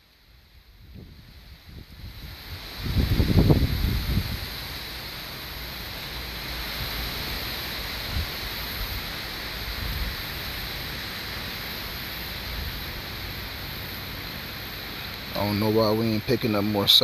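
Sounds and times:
wind buffeting microphone: 0.7s - 4.6s.

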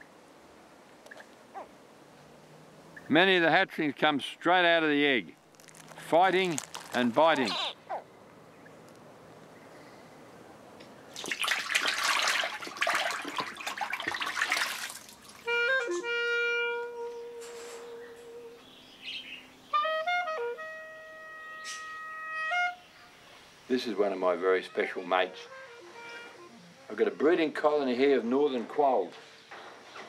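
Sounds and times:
hatchlings splashing in water: 11.1s - 15.5s
slow woodwind melody: 15.4s - 23.2s, 24.4s - 27.0s.

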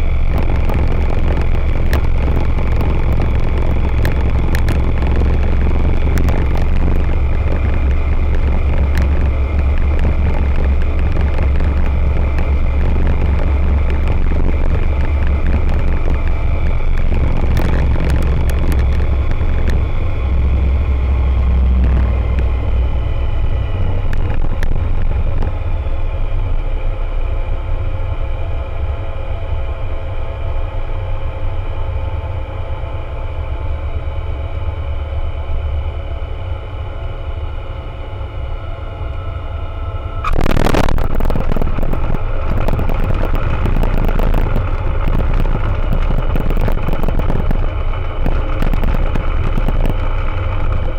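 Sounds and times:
wheels rolling on runway: 0.0s - 26.8s, 39.9s - 50.9s
aircraft engine and propeller: 0.0s - 50.9s.

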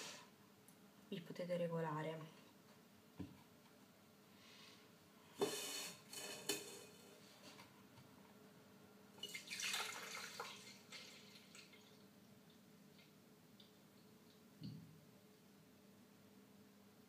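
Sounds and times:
milk pouring and splashing: 9.2s - 12.0s.

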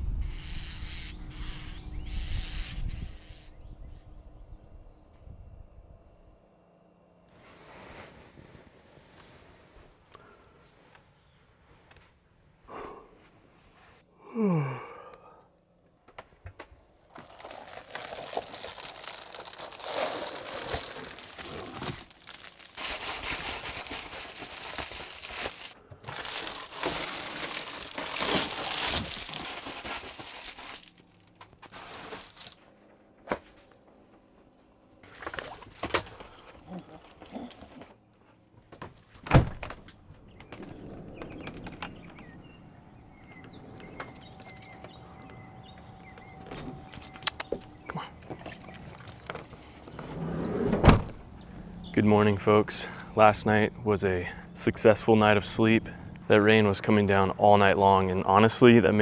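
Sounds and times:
rustling and wiping: 7.3s - 10.0s.

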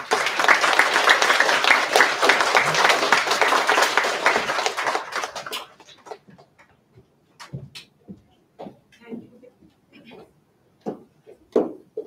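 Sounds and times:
audience applauding: 0.0s - 6.6s
faint knocks and shuffles: 6.2s - 12.0s.

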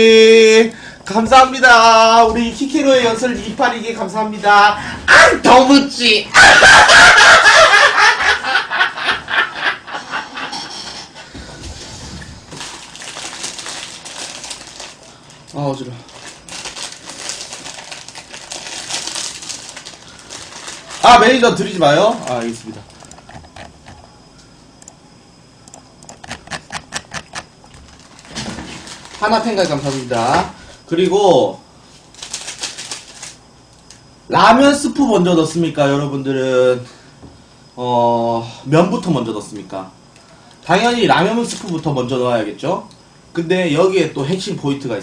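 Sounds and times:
man laughing hard: 6.4s - 10.6s.

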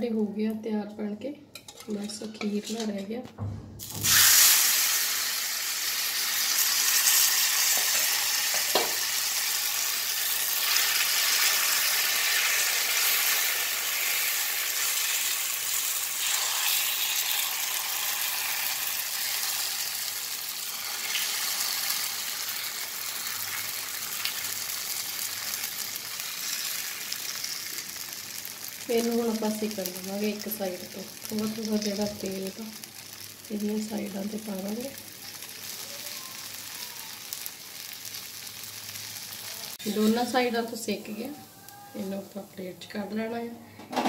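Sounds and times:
batter sizzling on a griddle: 3.9s - 42.4s.

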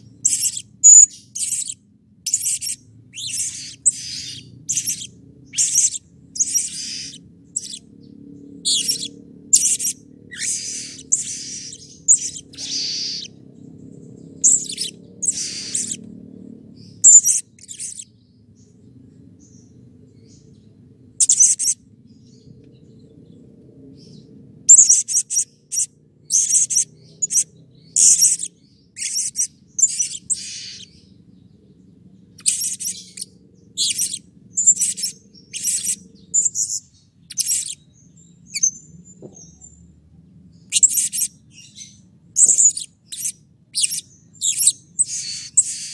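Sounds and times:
parrot chirping: 0.0s - 16.0s, 16.9s - 18.1s, 21.2s - 21.8s, 24.7s - 31.1s, 32.4s - 37.8s, 40.7s - 45.9s.

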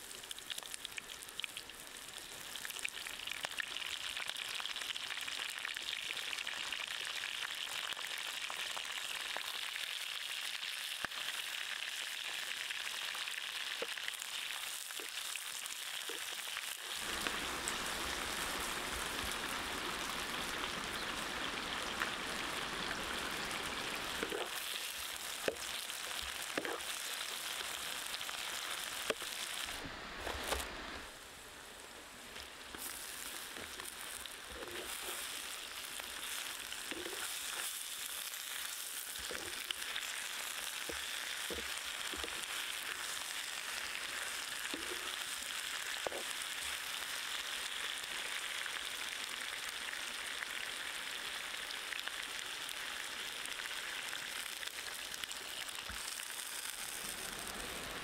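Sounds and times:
hot oil sizzling: 0.0s - 58.0s
wooden spatula clicks and scrapes: 25.4s - 27.1s, 32.7s - 35.4s.

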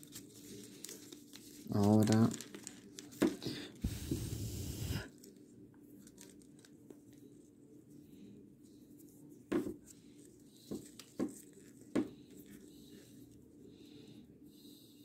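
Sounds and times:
plastic ribbon crackling: 0.0s - 3.4s, 6.0s - 6.9s
faint background hum: 0.0s - 15.0s.

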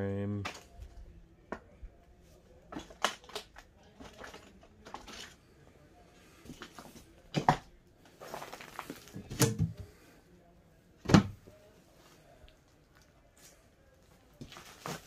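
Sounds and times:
wooden cabinet knocks and clunks: 11.0s - 11.4s.

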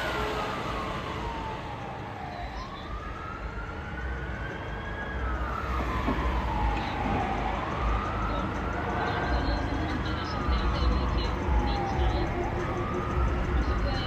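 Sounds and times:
engine and road rumble: 0.0s - 14.0s
fire engine siren wailing: 0.0s - 14.0s.

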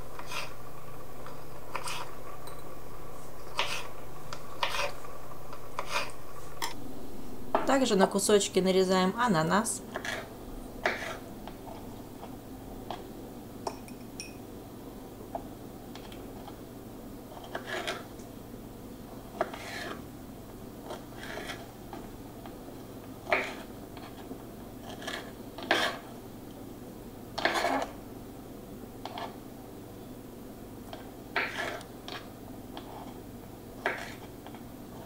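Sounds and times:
knife scraping strokes: 0.2s - 0.6s, 1.7s - 2.1s, 3.2s - 4.0s, 4.6s - 5.0s, 5.8s - 6.8s, 9.9s - 11.9s, 17.3s - 18.0s, 19.4s - 20.0s, 20.9s - 21.7s, 23.3s - 26.1s, 27.4s - 27.9s, 31.4s - 33.2s, 33.8s - 34.4s.

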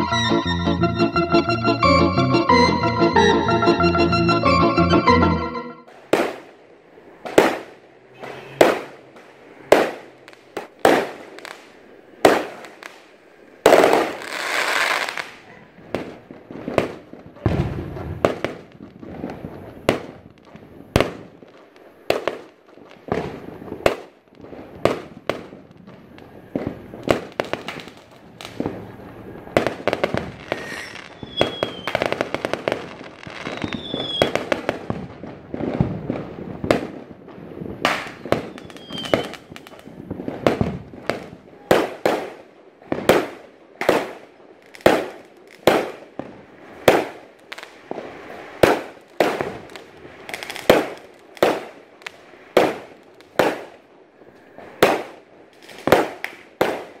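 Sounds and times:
fireworks bangs and crackling: 5.9s - 57.0s
fireworks whistles: 7.3s - 9.1s, 28.5s - 34.7s, 37.8s - 39.7s.

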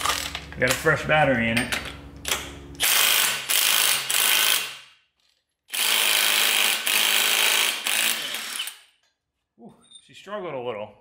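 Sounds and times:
impact wrench hammering: 5.7s - 8.8s.

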